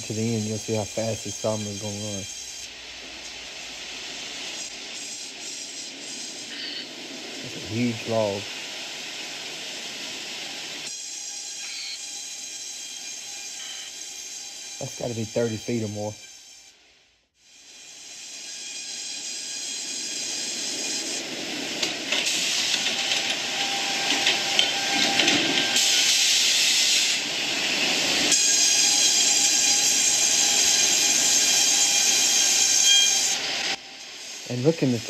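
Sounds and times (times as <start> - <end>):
sawmill machinery hissing: 0.0 - 16.7, 17.4 - 35.0
faint machine whine: 0.0 - 35.0.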